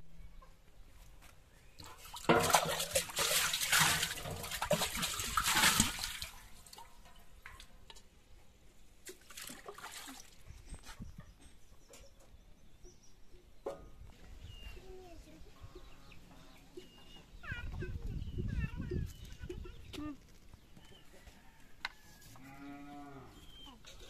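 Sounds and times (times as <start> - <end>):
water splashing and sloshing: 1.6 - 8.2, 8.9 - 11.1.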